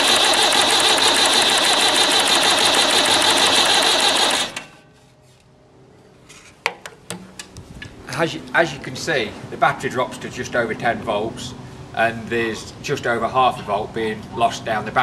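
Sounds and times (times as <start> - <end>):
tractor starter motor cranking: 0.0 - 4.7.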